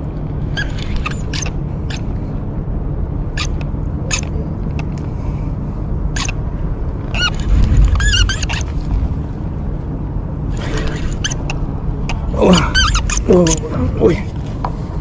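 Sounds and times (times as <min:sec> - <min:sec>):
wind rumble on microphone: 0:00.0 - 0:15.0
high squeaky chirps: 0:00.5 - 0:02.2, 0:03.3 - 0:04.4, 0:06.1 - 0:08.8, 0:10.6 - 0:11.6, 0:12.5 - 0:13.6.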